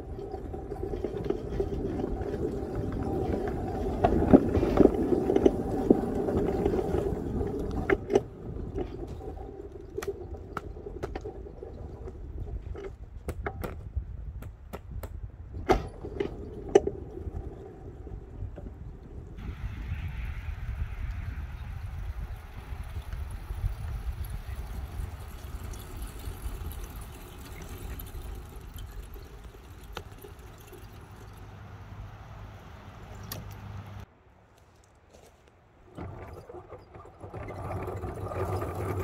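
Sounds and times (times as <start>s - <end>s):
sharp clicks and knocks: 0.2s - 17.5s.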